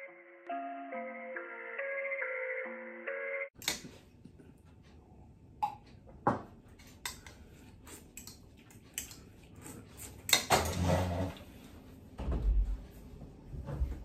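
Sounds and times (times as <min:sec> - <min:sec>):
chair scraping shuffle: 0:10.5 - 0:11.8.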